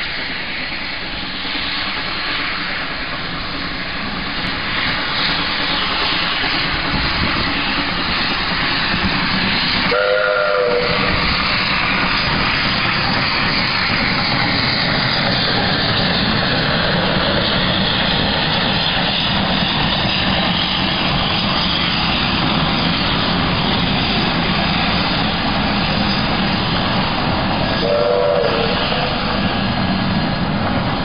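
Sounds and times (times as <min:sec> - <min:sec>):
steam locomotive rushing: 0:00.0 - 0:31.0
steam whistle: 0:09.8 - 0:11.3, 0:27.7 - 0:29.1.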